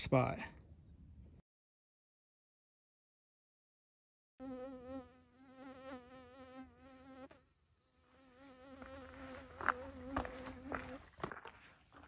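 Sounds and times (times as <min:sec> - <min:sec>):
bee buzzing: 0:04.4 - 0:11.1
footsteps on dirt trail: 0:08.8 - 0:12.0.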